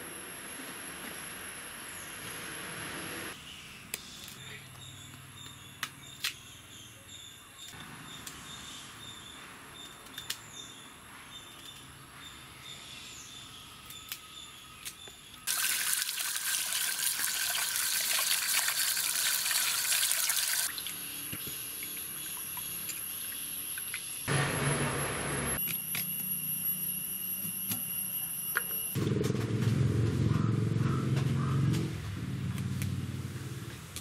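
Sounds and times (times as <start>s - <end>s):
running water splashing: 15.5s - 20.8s.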